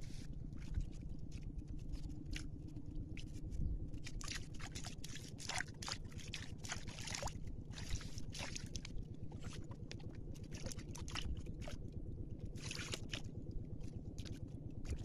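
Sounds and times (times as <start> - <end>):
low rumble: 0.0 - 15.0
water sloshing and splashing: 0.0 - 15.0.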